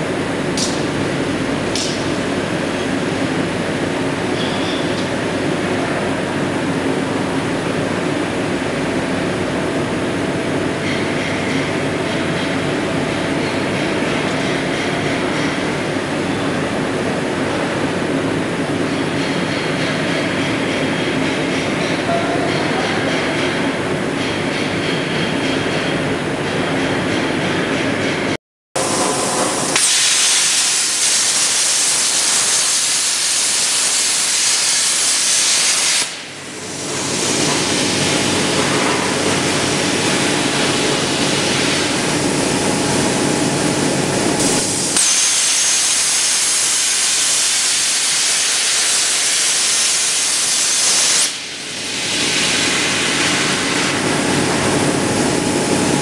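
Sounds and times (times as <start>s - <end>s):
machine running noise: 0.0s - 56.0s
plasma arc hissing: 29.0s - 37.2s, 44.4s - 52.6s.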